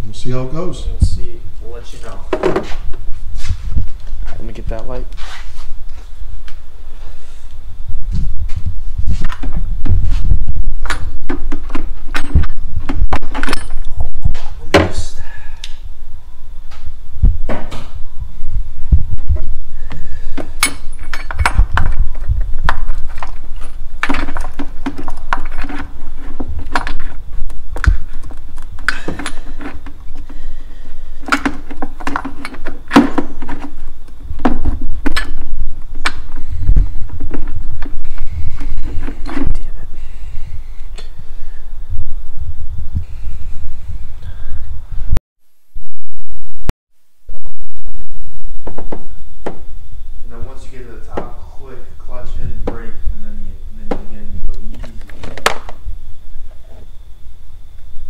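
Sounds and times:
dull low thumps and rubbing: 0:02.3 - 0:15.0, 0:17.0 - 0:20.6, 0:29.3 - 0:45.2.

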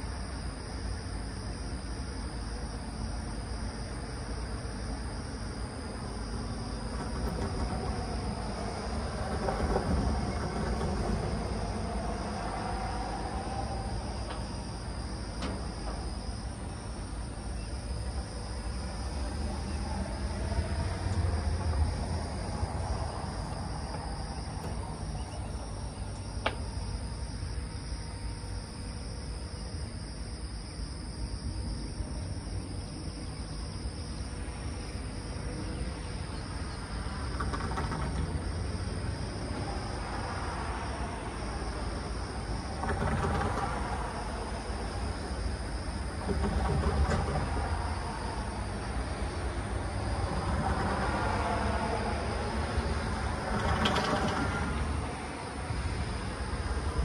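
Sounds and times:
insects buzzing: 0:00.0 - 0:57.0
low traffic rumble: 0:00.0 - 0:57.0
passing vehicles: 0:06.1 - 0:16.7, 0:18.1 - 0:27.1, 0:35.6 - 0:57.0.

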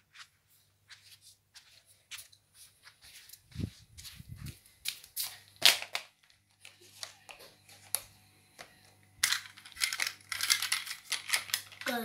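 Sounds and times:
plastic toy track clicking: 0:09.2 - 0:12.0.

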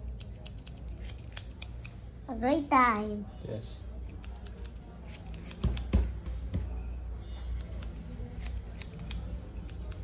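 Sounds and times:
scissors snipping hair: 0:00.0 - 0:02.0, 0:04.0 - 0:05.9, 0:07.6 - 0:10.0.

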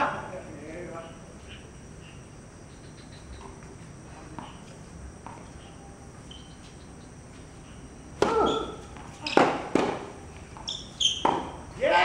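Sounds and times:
tennis ball bouncing on hard court: 0:04.3 - 0:05.5, 0:08.2 - 0:11.6.

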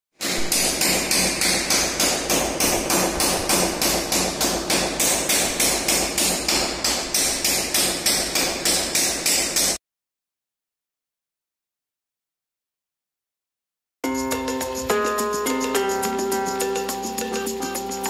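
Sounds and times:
hammer tapping: 0:00.2 - 0:09.8.

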